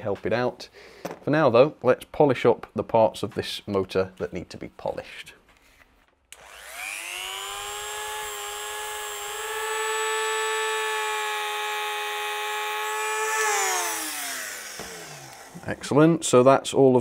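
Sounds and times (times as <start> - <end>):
rotary multi-tool high whine: 6.3 - 15.8.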